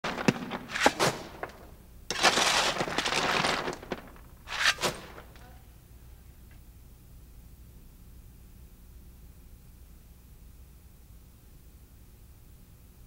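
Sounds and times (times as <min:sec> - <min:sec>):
coal shovelled into firebox: 0:00.0 - 0:05.4.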